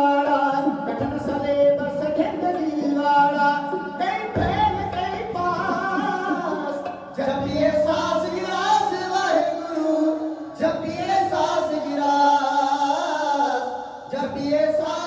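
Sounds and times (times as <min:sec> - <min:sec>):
hand drums: 0:00.0 - 0:12.0
men singing together: 0:00.0 - 0:15.0.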